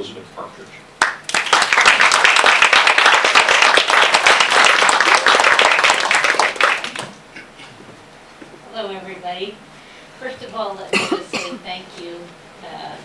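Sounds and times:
audience applauding: 1.0 - 7.2.

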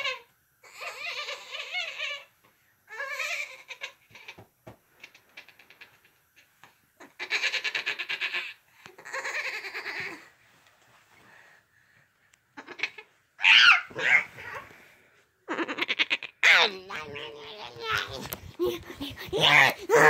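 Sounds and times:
rustling of a bedspread: 10.0 - 12.1
girl making animal calls: 15.5 - 20.0
girl making laugh-like calls: 18.0 - 20.0.

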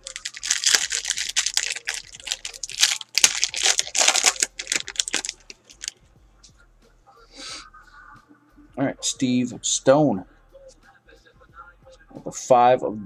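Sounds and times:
wrapper tearing and crinkling: 0.0 - 6.0.

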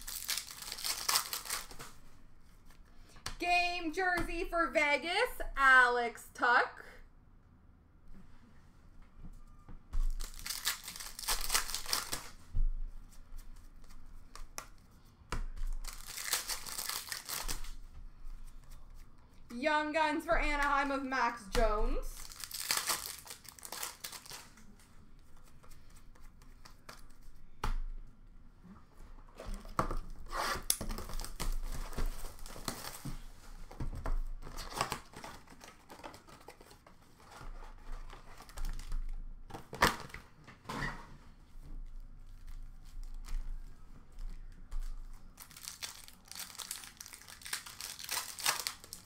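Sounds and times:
foil wrappers crinkling: 0.0 - 2.0, 10.1 - 12.4, 15.7 - 17.8, 22.0 - 24.6, 44.2 - 49.0.

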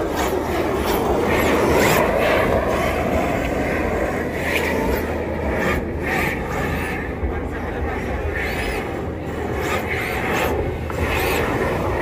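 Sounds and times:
rc cars scrubbing whir: 0.0 - 3.5, 8.2 - 12.0.

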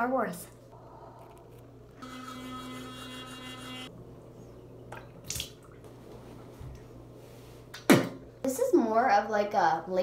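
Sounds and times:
electric toothbrush buzzing: 2.0 - 3.9.

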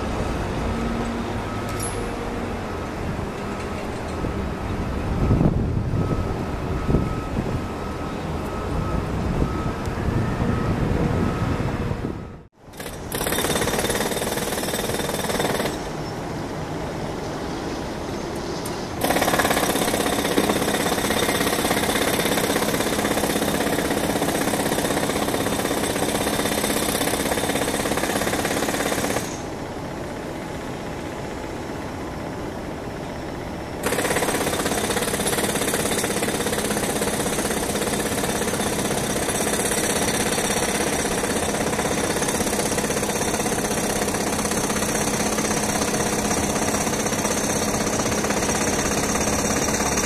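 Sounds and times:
jet engine whine: 0.0 - 12.5.

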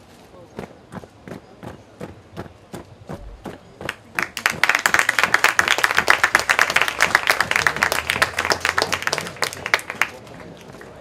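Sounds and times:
audience clapping: 3.8 - 11.0.

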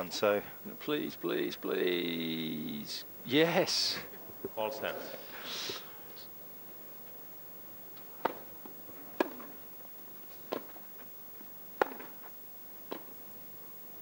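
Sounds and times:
rackets hitting tennis ball: 8.0 - 13.2.

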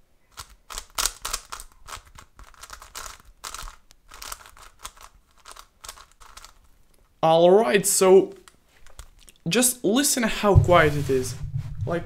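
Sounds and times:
plastic puzzle turns clicking: 0.3 - 7.1.

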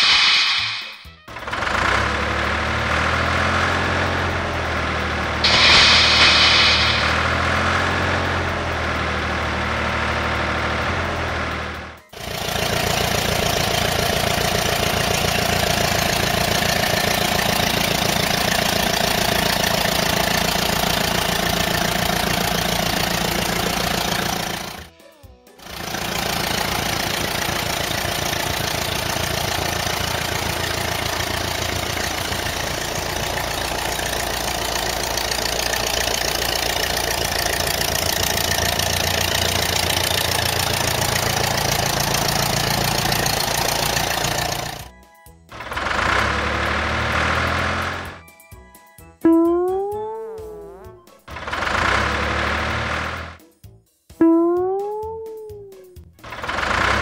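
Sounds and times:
background music: 0.0 - 16.8, 21.2 - 34.2, 43.4 - 57.0
tractor engine running: 0.0 - 24.9, 25.6 - 48.3, 49.3 - 53.4, 56.1 - 57.0.

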